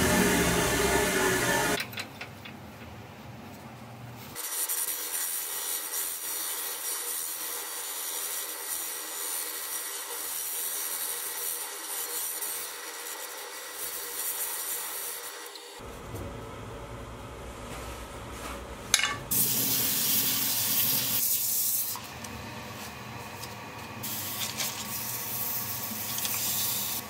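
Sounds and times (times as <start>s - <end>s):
sandpaper hissing on spinning wood: 4.4s - 15.8s, 24.0s - 27.0s.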